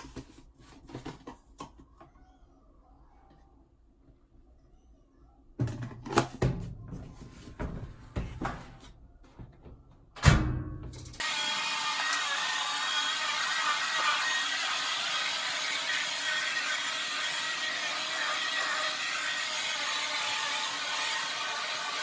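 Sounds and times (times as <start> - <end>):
plastic clatter and knocks: 0.0 - 1.9, 5.6 - 7.0.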